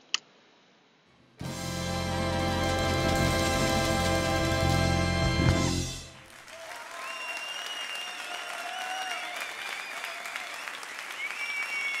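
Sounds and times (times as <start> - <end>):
crowd clapping: 2.6 - 12.0
high cheers: 6.4 - 12.0.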